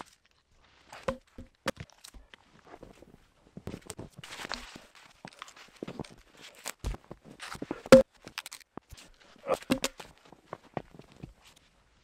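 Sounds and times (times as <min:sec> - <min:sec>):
footsteps in snow: 0:02.4 - 0:08.0
logs knocking on wood: 0:09.7 - 0:10.0.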